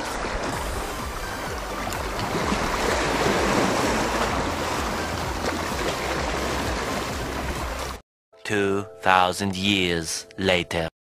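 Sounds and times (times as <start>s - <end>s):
sea waves washing on rocks: 0.0s - 8.0s.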